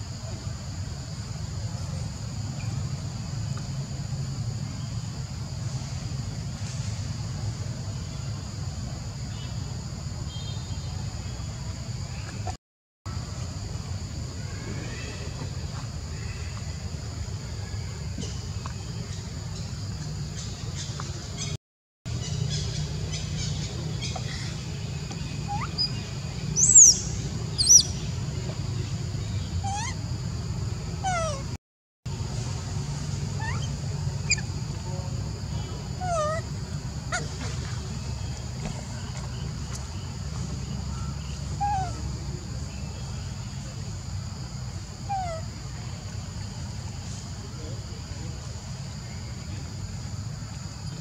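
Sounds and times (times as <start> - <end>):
birds chirping: 18.2 - 30.1, 30.9 - 31.6, 32.6 - 43.7, 45.1 - 45.4.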